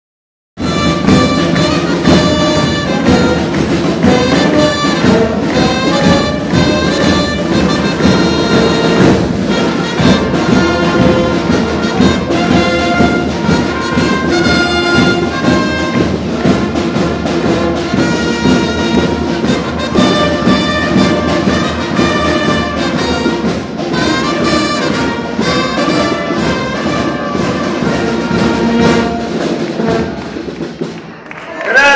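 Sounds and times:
saxophone: 0.6s - 16.9s
bass drum: 0.6s - 31.2s
snare drum: 0.6s - 31.2s
street band playing: 0.6s - 31.9s
trumpets: 0.6s - 31.9s.

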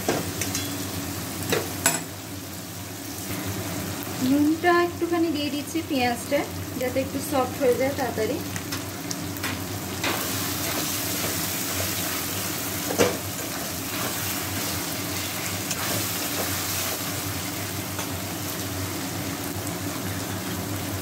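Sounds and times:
onions sizzling in hot oil: 0.0s - 21.0s.

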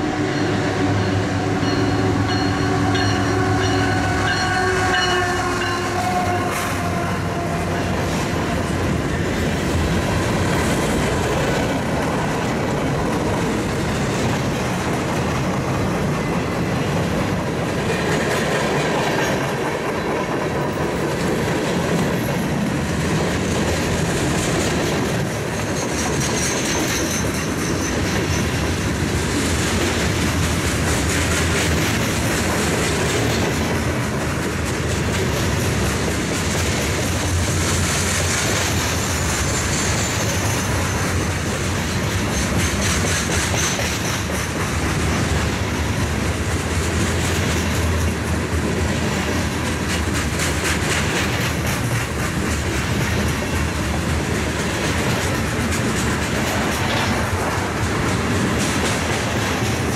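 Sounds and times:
train wheels clattering over rails: 6.1s - 59.9s
high wheel squeal: 25.5s - 28.7s, 38.9s - 41.3s.

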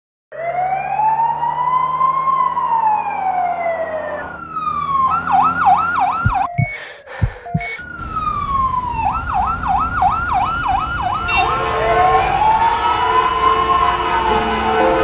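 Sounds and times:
ambulance siren: 0.3s - 6.6s, 7.5s - 15.0s
low thumps: 6.1s - 8.0s.

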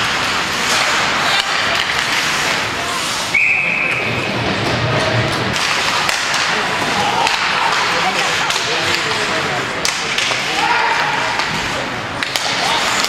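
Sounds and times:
stick and puck cracks: 0.0s - 2.6s, 5.3s - 13.0s
skate blades scraping on ice: 0.0s - 3.4s.

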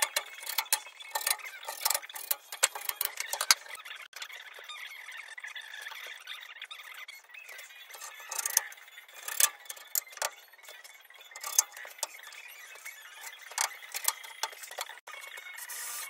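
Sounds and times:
tools clicking and knocking on wood: 0.0s - 3.8s, 7.9s - 12.2s, 13.2s - 15.1s.

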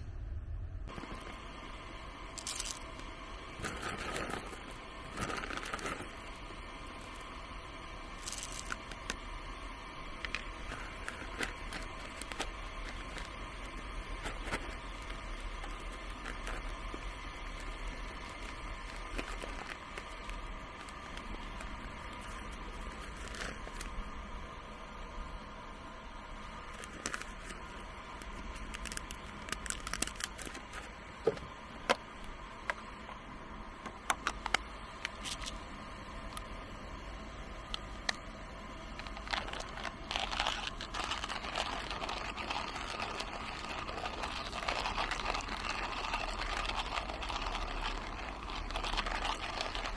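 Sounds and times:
paper bag crinkling: 10.3s - 23.9s, 26.6s - 30.9s, 38.9s - 49.9s.

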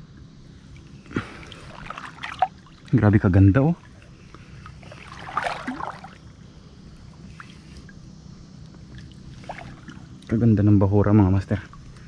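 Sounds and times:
shallow water sloshing: 0.7s - 6.3s, 8.8s - 10.3s
water splash: 1.2s - 2.9s, 4.9s - 6.2s.

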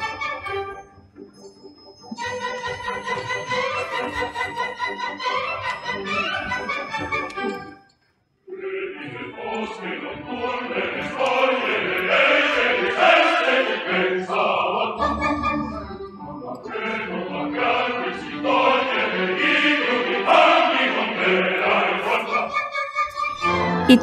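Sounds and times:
opera chorus singing: 8.5s - 15.7s, 16.6s - 24.0s.

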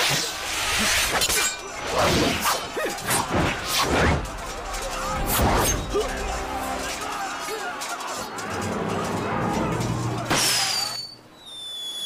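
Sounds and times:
fighters shouting: 2.4s - 3.7s, 5.0s - 11.0s.

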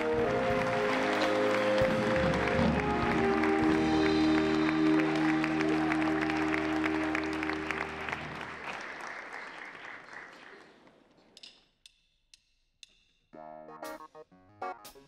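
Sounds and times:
live band holding a chord: 0.0s - 8.7s
audience applause: 0.0s - 11.1s.

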